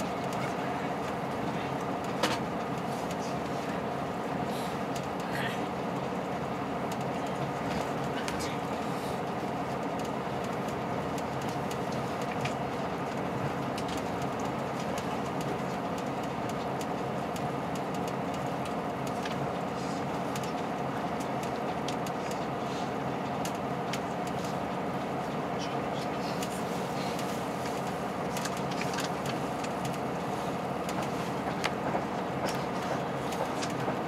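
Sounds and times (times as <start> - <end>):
diesel train engine drone: 0.0 - 34.0
train wheels on rails: 0.0 - 34.0.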